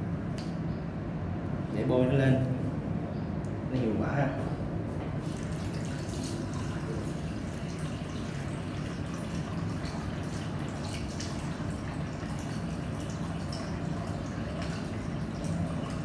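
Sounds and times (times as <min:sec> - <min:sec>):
tap water splashing into sink: 0:05.2 - 0:16.0.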